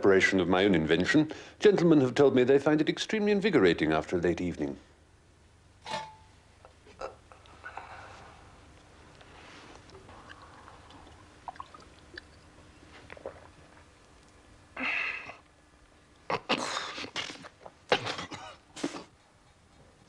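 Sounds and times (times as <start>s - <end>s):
man gulping a drink: 9.8s - 14.4s, 17.0s - 18.1s
man spluttering and coughing: 16.3s - 19.1s.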